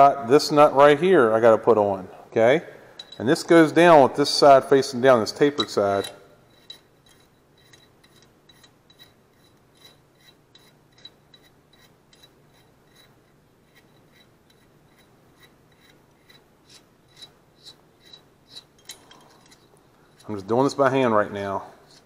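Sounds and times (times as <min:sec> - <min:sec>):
small metallic clicks: 0:18.1 - 0:19.7.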